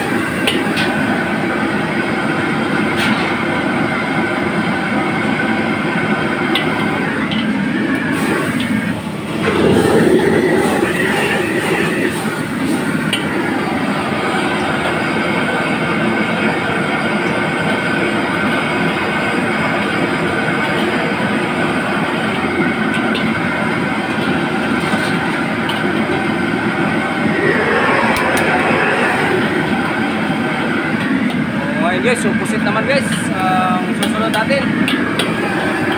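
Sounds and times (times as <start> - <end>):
gas burner rushing: 8.0 - 13.5, 26.7 - 30.7.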